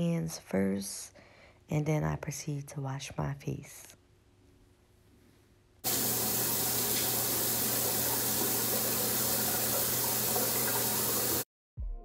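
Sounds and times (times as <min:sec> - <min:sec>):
sink tap running: 0:05.8 - 0:11.4.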